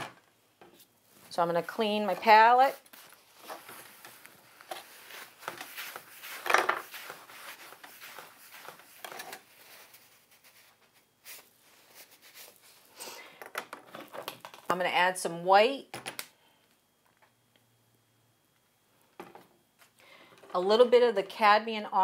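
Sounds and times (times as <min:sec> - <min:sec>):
paper towel wiping palette: 0:01.1 - 0:12.9.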